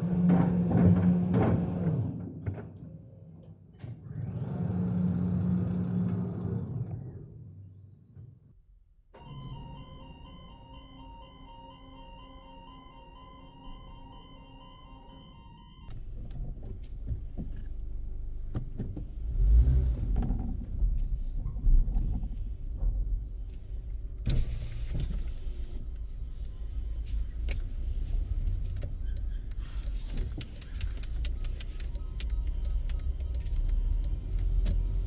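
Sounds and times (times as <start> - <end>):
car rumbling moving off: 4.0 - 7.8, 16.0 - 35.0.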